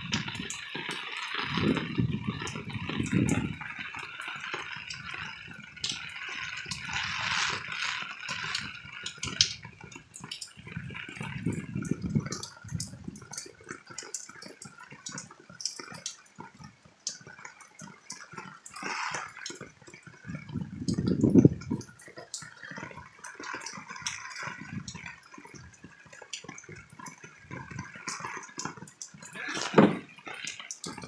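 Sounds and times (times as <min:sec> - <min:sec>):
close drips and splatters: 0:00.0 - 0:31.0
heavy rain pouring: 0:00.0 - 0:31.0
wind buffeting microphone: 0:01.5 - 0:04.0, 0:10.6 - 0:13.4, 0:20.2 - 0:22.0, 0:24.0 - 0:25.0.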